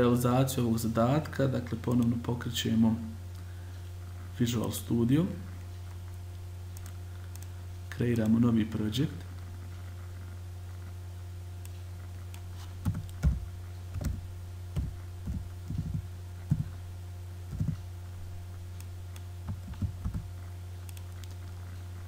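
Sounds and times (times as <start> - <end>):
low electrical hum: 0.0 - 22.0
keyboard typing: 12.8 - 14.2, 14.8 - 16.8, 17.5 - 17.8, 19.2 - 20.3.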